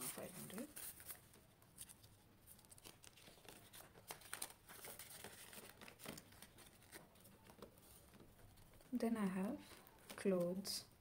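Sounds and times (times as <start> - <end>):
paper banknotes crinkling: 0.0 - 10.8
plastic pouch crackling: 0.1 - 7.8.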